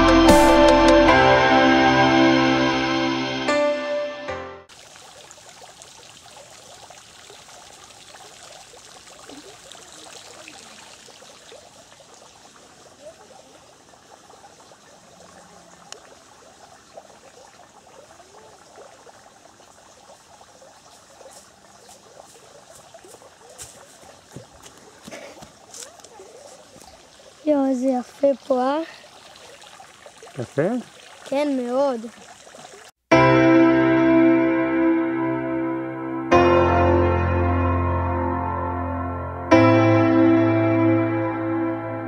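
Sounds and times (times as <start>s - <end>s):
water trickling and gurgling: 4.7s - 33.0s.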